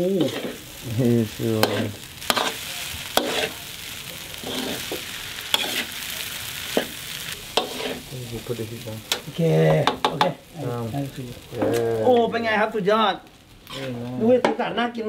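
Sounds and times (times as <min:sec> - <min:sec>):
metal spatula scraping a wok: 0:00.0 - 0:00.8, 0:01.6 - 0:08.1, 0:13.7 - 0:14.1
fried rice sizzling in a wok: 0:00.0 - 0:15.0.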